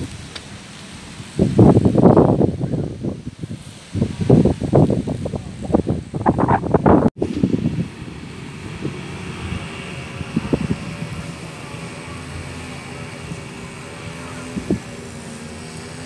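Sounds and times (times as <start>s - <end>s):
faint mechanical drone: 6.0s - 16.0s.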